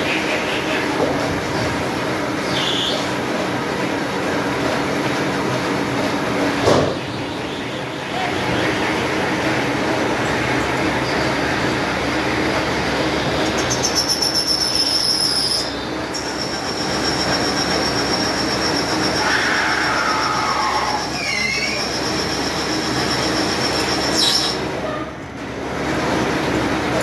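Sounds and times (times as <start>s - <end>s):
lathe machining noise: 7.4s - 24.9s
high-pitched squeal: 13.4s - 25.1s.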